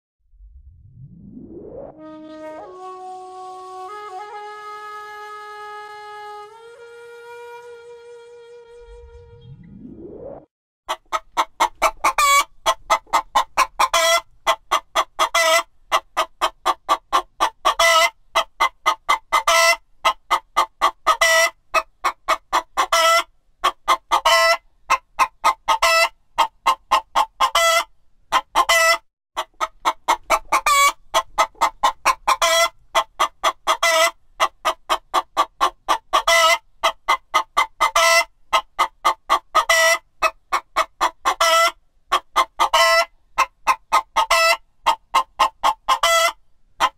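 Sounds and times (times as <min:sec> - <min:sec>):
chicken clucking: 0:10.9 - 0:46.9.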